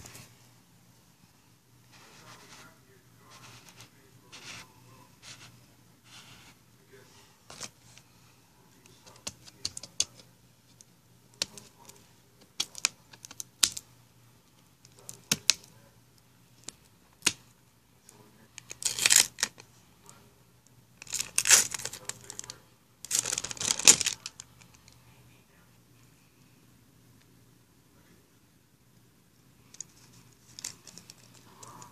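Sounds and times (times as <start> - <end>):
plastic label peeling: 18.6 - 19.6, 21.0 - 24.7
plastic bottle crackling: 23.0 - 24.4.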